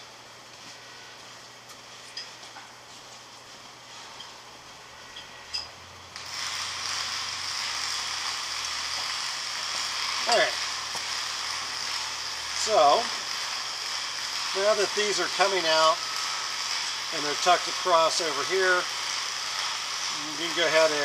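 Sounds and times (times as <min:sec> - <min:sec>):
steady hiss: 0:05.9 - 0:21.0.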